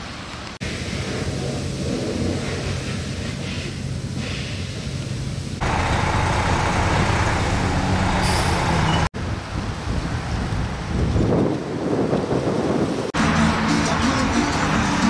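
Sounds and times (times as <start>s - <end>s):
traffic rumble: 0.0s - 15.0s
short hiss: 3.0s - 4.8s.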